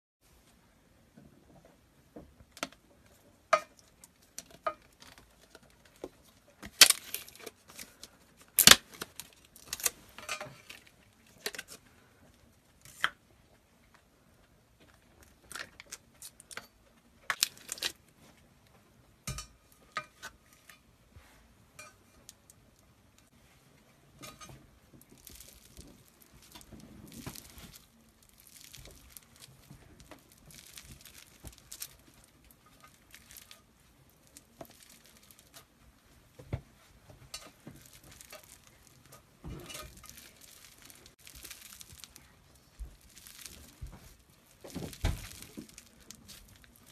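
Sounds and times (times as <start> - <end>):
grainy crackling of squeezed beads: 3.8 - 11.9, 17.2 - 18.1, 24.9 - 35.8, 37.5 - 46.9
plastic packaging clicks and cracks: 4.1 - 11.8, 17.3 - 18.0.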